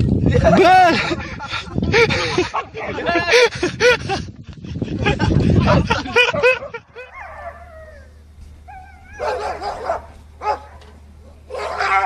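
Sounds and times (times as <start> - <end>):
steady low hum: 0.0 - 12.0
dog barking: 9.1 - 12.0.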